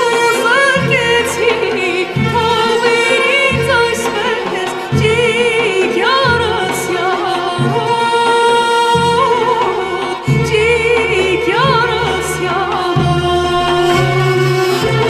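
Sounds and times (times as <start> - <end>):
instrumental accompaniment: 0.0 - 15.0
woman singing folk song: 0.0 - 15.0.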